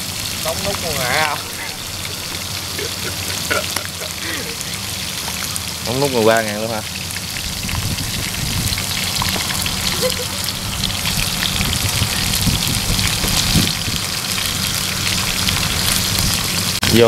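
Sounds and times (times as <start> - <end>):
meat frying in hot oil: 0.0 - 17.0.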